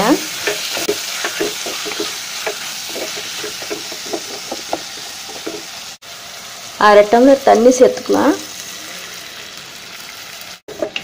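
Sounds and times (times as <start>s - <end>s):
chicken sizzling in hot oil: 0.0s - 11.0s
spatula scraping clay pot: 0.3s - 5.7s.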